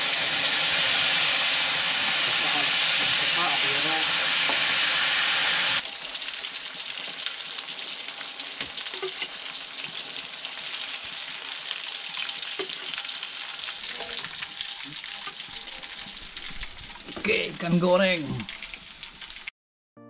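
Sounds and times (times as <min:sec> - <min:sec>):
loud even hiss: 0:00.0 - 0:05.8
fish sizzling in hot oil: 0:00.0 - 0:19.5.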